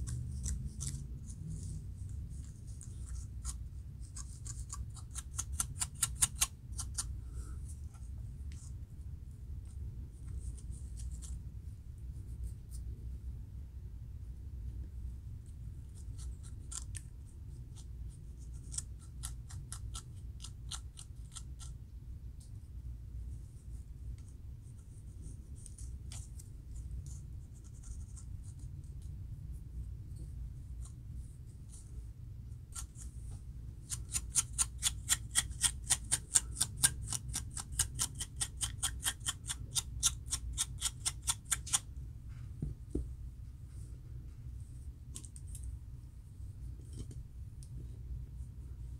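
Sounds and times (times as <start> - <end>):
fingers scratching scalp: 0.0 - 1.8, 2.4 - 7.1, 33.8 - 41.8
steady low hum: 0.0 - 48.9.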